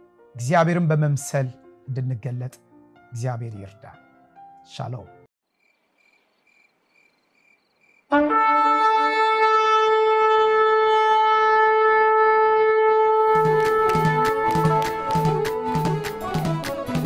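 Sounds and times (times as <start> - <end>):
ram's horn blast: 8.1 - 17.0.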